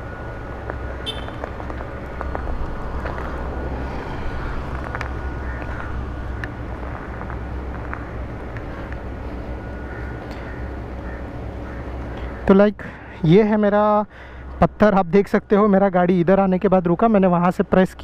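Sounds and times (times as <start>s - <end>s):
low road rumble: 0.0s - 18.0s.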